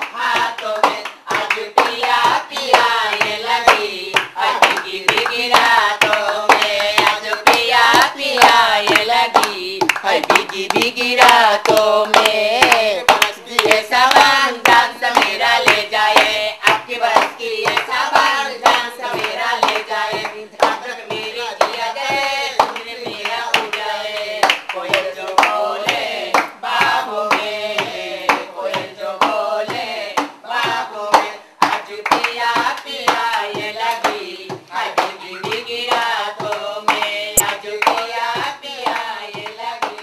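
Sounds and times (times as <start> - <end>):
barrel drum beats: 0.0 - 23.7
group singing: 0.0 - 40.0
hand clapping: 0.0 - 40.0.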